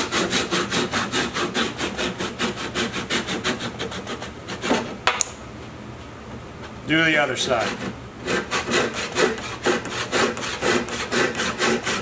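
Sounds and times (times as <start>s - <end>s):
hand saw cutting wood: 0.0s - 5.0s, 7.4s - 12.0s.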